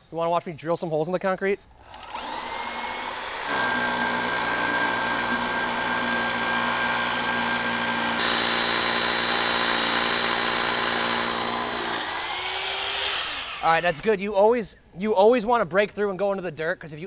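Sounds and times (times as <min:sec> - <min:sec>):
hammer drill boring into concrete: 0:01.8 - 0:14.1.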